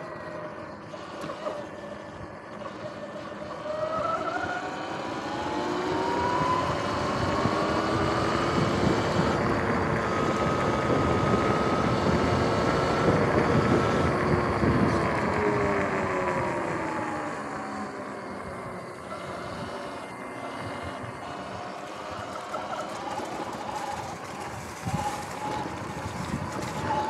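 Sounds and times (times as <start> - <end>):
electric motor whining: 0.0 - 27.0
tyre and wind rush: 19.2 - 27.0.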